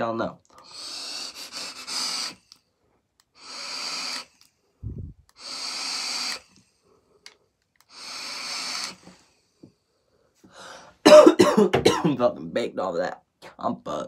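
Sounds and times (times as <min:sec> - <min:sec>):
person exhaling long breaths: 0:10.4 - 0:11.0.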